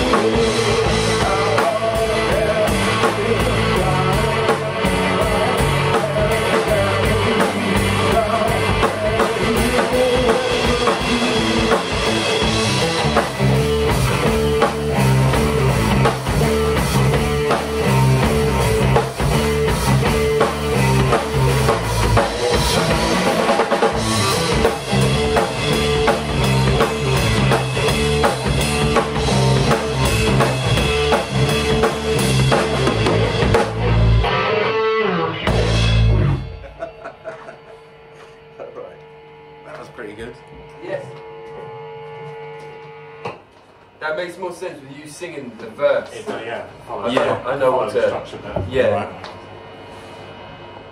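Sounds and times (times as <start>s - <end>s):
drum kit beat: 0.0s - 38.6s
electric bass: 0.0s - 44.0s
electric guitar: 0.0s - 44.0s.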